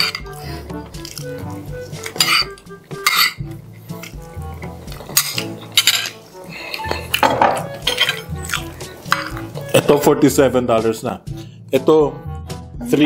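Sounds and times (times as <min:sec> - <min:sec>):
background music bass line: 0:00.0 - 0:13.0
cutlery clinking on a plate: 0:02.2 - 0:03.4, 0:05.0 - 0:06.2, 0:06.8 - 0:08.3.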